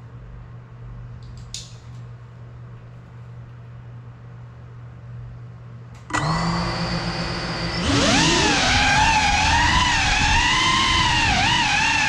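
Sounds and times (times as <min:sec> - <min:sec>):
quadcopter motors whining: 0:06.1 - 0:12.0.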